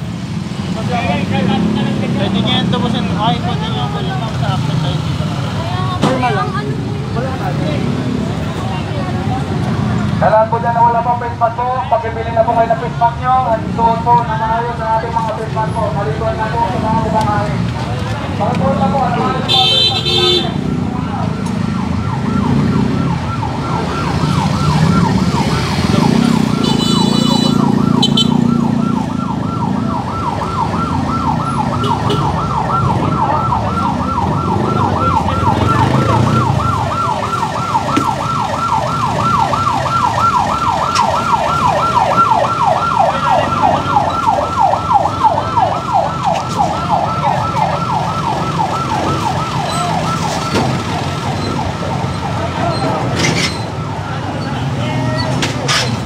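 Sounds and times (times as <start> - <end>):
low street rumble: 0.0 - 56.0
electronic siren yelping: 21.0 - 53.0.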